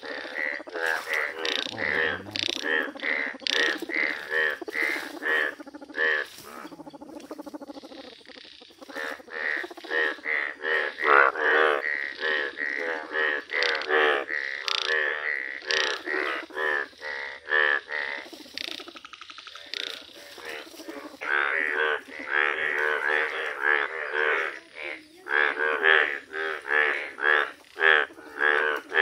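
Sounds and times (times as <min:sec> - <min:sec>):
bullfrogs croaking: 0:00.0 - 0:29.0.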